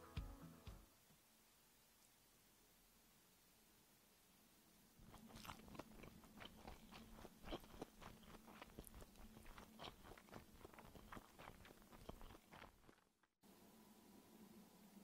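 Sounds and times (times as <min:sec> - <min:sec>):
chewing crunches: 0:05.0 - 0:13.3.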